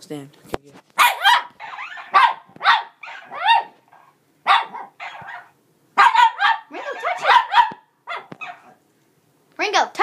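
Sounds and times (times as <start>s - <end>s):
puppy barking: 1.0s - 8.8s.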